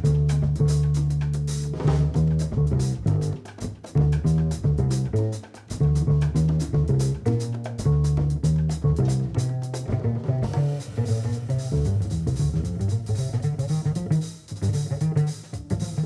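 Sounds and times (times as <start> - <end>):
congas: 0.0 - 16.0
drum kit: 0.0 - 16.0
upright bass: 0.0 - 16.0.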